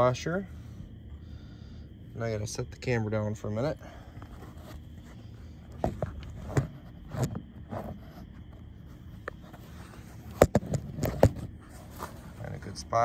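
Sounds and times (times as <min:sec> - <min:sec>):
phone handling knocks and rubs: 0:04.3 - 0:12.3.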